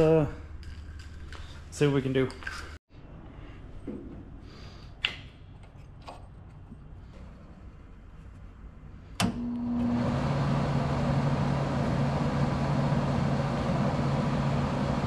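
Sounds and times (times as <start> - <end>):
welder fan and hum: 9.2 - 15.0.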